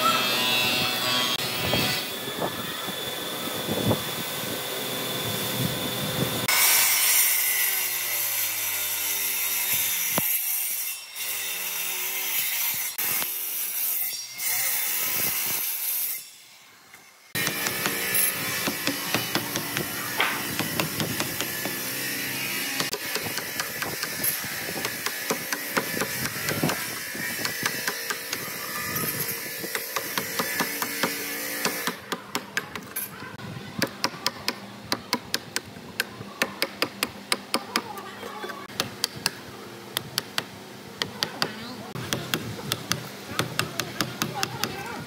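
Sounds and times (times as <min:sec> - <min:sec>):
hammer striking chisel into wood: 0:17.4 - 0:21.9, 0:22.7 - 0:24.1, 0:24.8 - 0:26.8, 0:27.4 - 0:28.4, 0:29.7 - 0:32.9, 0:40.0 - 0:44.8.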